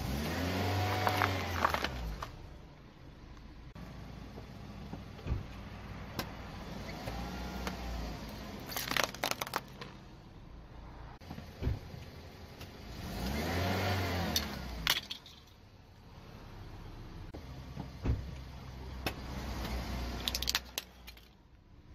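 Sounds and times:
car engine running slowly: 0:00.7 - 0:06.2
plastic cracking under tyre: 0:00.9 - 0:02.4, 0:08.7 - 0:10.0, 0:20.2 - 0:21.4.

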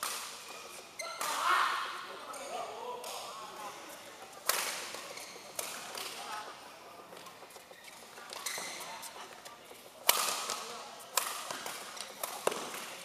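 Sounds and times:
rackets striking shuttlecock: 0:00.0 - 0:01.5, 0:04.3 - 0:06.2, 0:10.0 - 0:13.0.

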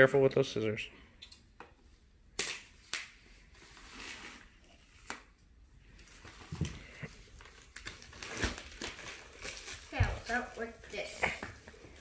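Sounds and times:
plastic wrap rustling: 0:05.8 - 0:12.0.

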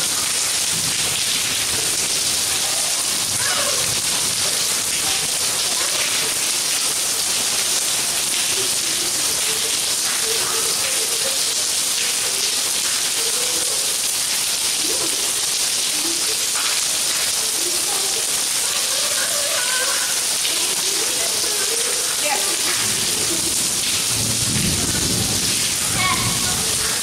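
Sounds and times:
rain falling on wet paving: 0:00.0 - 0:27.0.

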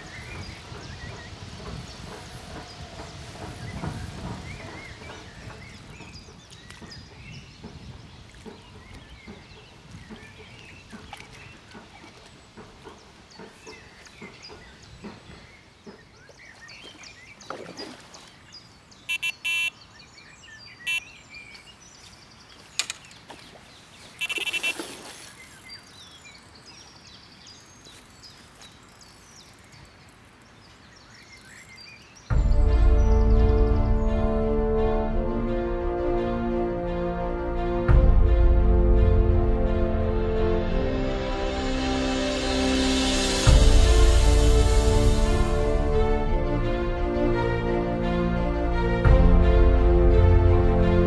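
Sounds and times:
faint bird chirps: 0:19.0 - 0:25.9
bite alarm beeps: 0:19.1 - 0:19.7, 0:24.2 - 0:24.8.

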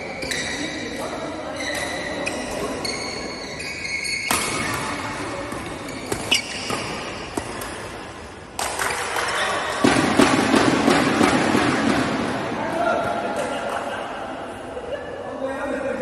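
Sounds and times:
shoe squeaks on floor: 0:00.0 - 0:07.8
racket striking shuttlecock: 0:04.2 - 0:12.0.

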